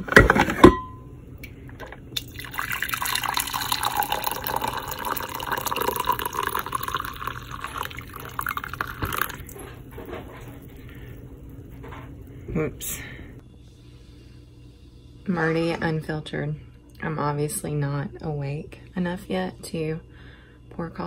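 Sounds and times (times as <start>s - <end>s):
coffee pouring into mug: 2.1s - 10.9s.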